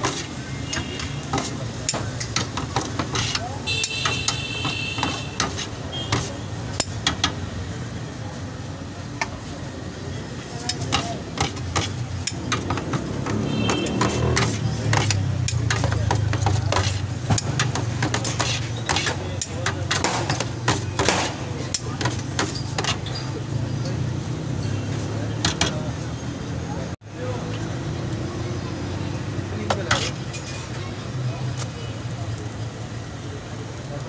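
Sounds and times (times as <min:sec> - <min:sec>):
metal utensils clattering on steel pan: 0:00.0 - 0:07.4, 0:10.7 - 0:24.0, 0:25.4 - 0:25.8, 0:29.7 - 0:30.8.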